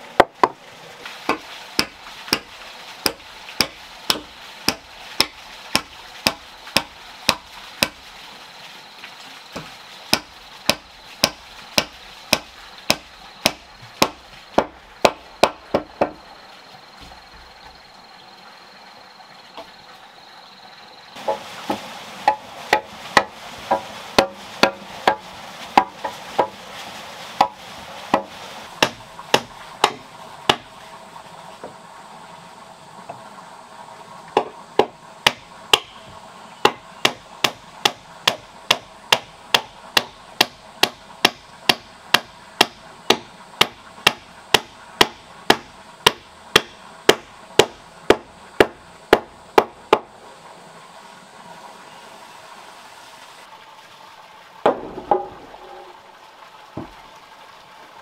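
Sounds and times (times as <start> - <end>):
hand tool striking wood: 0.2 - 0.6, 1.3 - 8.0, 9.6 - 16.2, 21.2 - 25.2, 25.8 - 26.6, 27.4 - 30.7, 34.4 - 36.0, 36.6 - 50.1.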